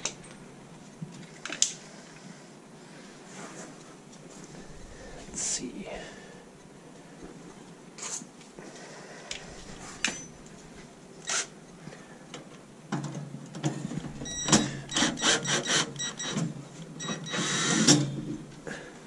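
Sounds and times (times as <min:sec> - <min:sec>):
cordless drill running in bursts: 0:14.9 - 0:16.1, 0:17.3 - 0:17.9.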